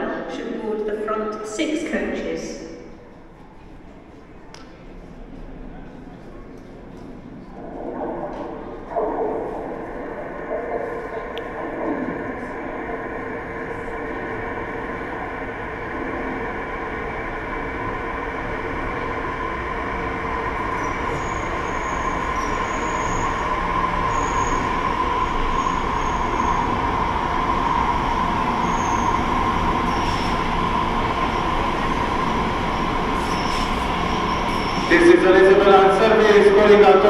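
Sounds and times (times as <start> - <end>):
steady train whine: 0.0 - 37.0
train running rumble: 4.9 - 37.0
high wheel squeals: 28.6 - 30.6, 33.1 - 34.9.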